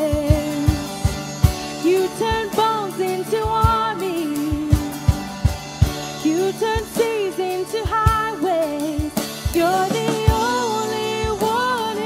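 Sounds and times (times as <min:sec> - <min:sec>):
acoustic guitar: 0:00.0 - 0:12.0
drum kit beat: 0:00.0 - 0:12.0
keyboard: 0:00.0 - 0:12.0
woman and man singing: 0:06.2 - 0:12.0.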